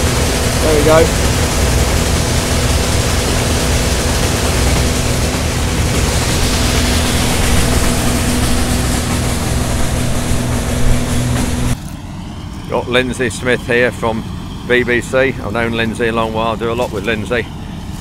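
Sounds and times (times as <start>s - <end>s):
combine harvester droning: 0.0s - 18.0s.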